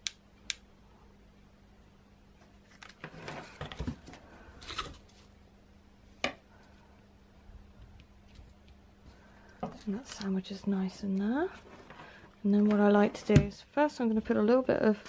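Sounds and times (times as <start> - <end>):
cardboard scraping and rustling: 2.6 - 5.3.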